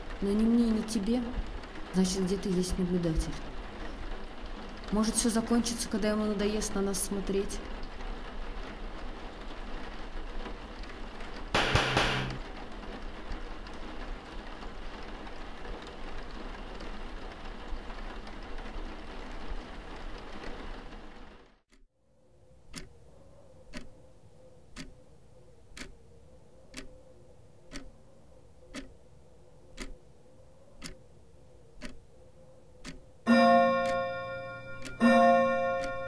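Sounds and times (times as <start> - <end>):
clock ticking: 11.6 - 12.4, 22.7 - 23.0, 23.7 - 24.0, 24.7 - 25.1, 25.7 - 26.0, 26.7 - 27.0, 27.7 - 28.0, 28.7 - 29.0, 29.7 - 30.0, 30.8 - 31.0, 31.8 - 32.1, 32.8 - 36.0
faint steady tone: 22.0 - 36.0.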